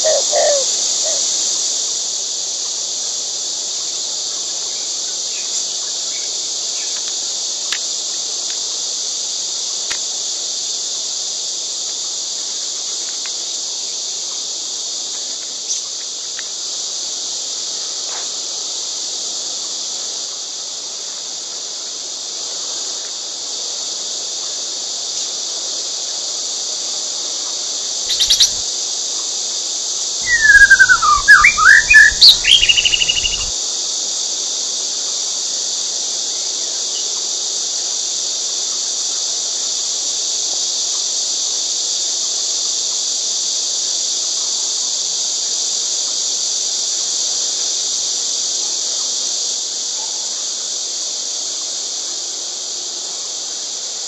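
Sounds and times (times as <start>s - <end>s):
shrill insect drone: 0.0s - 2.8s, 27.8s - 34.0s
sweeping bird chirps: 28.1s - 28.6s, 30.2s - 33.5s.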